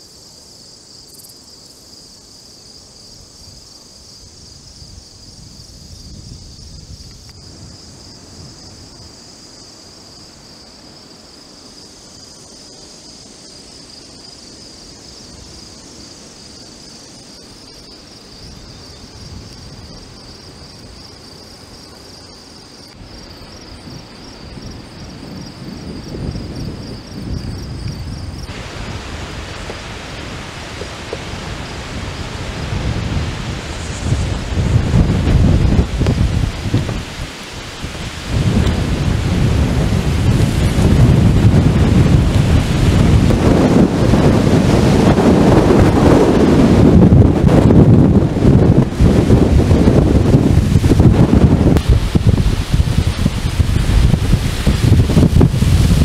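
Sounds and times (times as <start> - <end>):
crickets chirping: 0.0 - 56.0
loud rushing storm wind: 4.3 - 12.2, 22.6 - 56.0
wind buffeting microphone: 4.4 - 9.2, 23.0 - 56.0.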